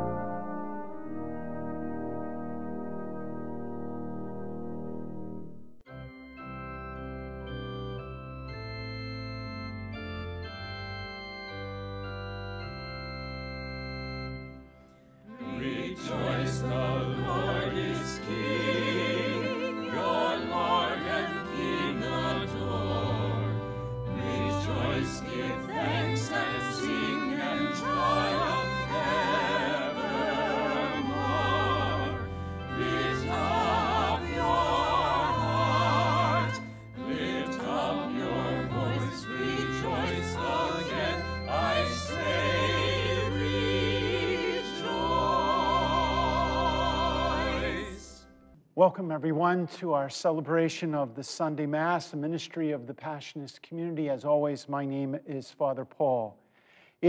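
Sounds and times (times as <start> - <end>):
slow organ chords: 0.0 - 48.5
singing with vibrato: 15.4 - 48.2.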